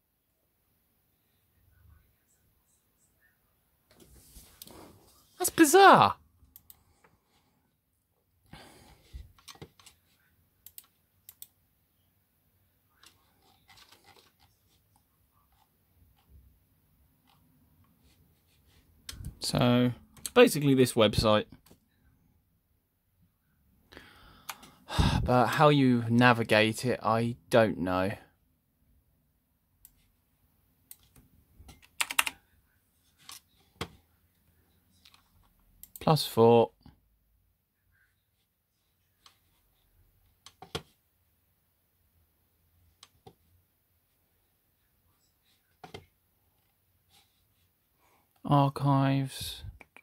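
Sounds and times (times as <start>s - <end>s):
computer mouse clicking: 9.3s - 10.0s, 10.6s - 11.6s, 30.9s - 32.4s.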